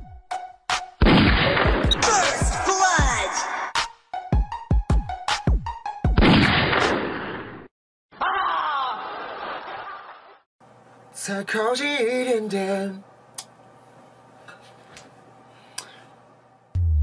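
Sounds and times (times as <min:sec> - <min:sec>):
person laughing: 0:08.2 - 0:10.3.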